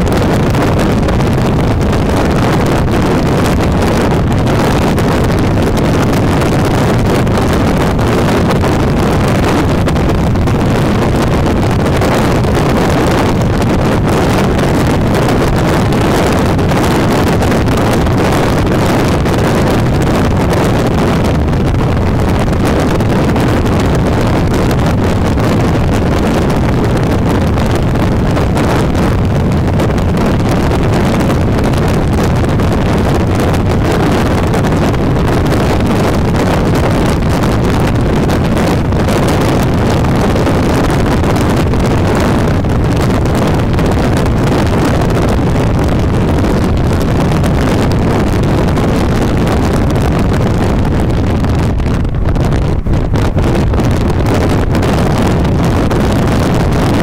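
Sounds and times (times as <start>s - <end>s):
car road noise at highway speed: 0.0s - 57.0s
wind buffeting microphone: 0.0s - 57.0s.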